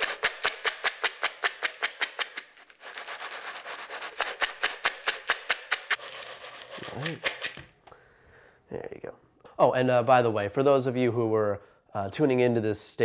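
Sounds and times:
cereal rattling in plastic bowl: 0:00.0 - 0:07.6.

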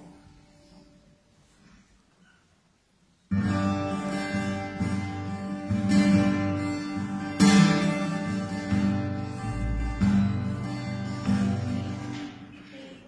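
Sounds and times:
strummed acoustic guitar chords: 0:03.3 - 0:12.6.

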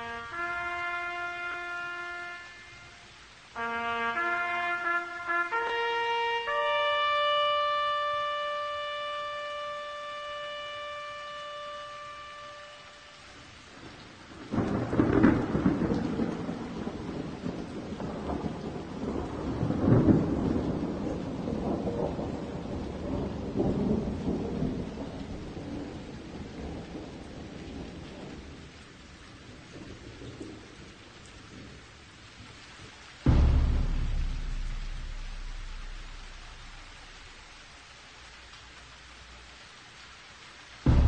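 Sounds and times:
rolling thunder: 0:13.8 - 0:28.7, 0:33.3 - 0:37.9.

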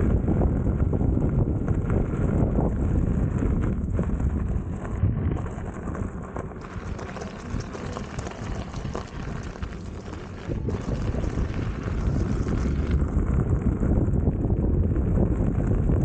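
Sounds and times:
wind buffeting microphone: 0:00.0 - 0:16.0
tyres rolling over gravel: 0:03.1 - 0:14.0.

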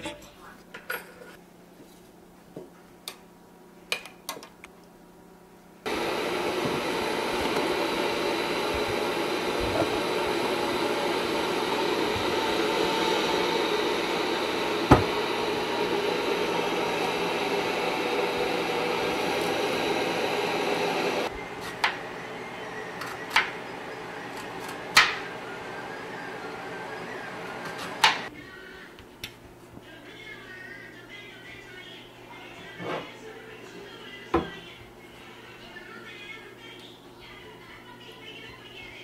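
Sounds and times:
kitchen appliance rushing noise: 0:05.9 - 0:28.3.

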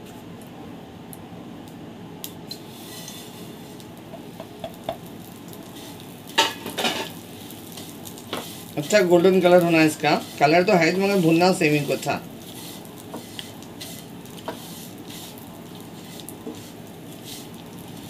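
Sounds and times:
vermicelli sizzling in a pan: 0:02.4 - 0:18.0
spatula scraping a pan: 0:02.6 - 0:03.8, 0:05.8 - 0:18.0.

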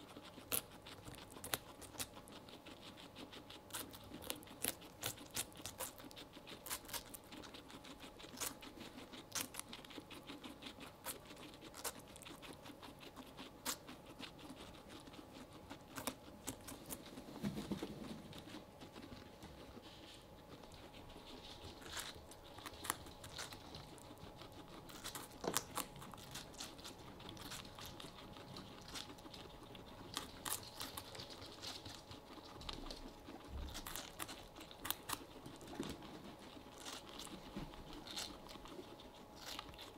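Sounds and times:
guinea pigs chewing watermelon: 0:00.0 - 0:39.9.

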